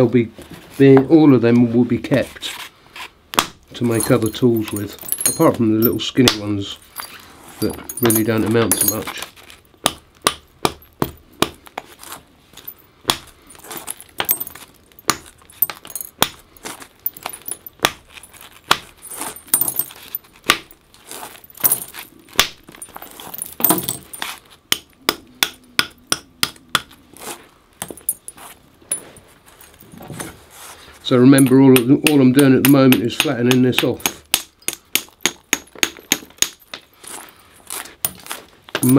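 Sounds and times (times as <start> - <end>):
antler hammer knocking flint: 7.6 - 9.1, 9.8 - 11.8, 14.2 - 18.1, 21.6 - 27.0, 31.4 - 36.9.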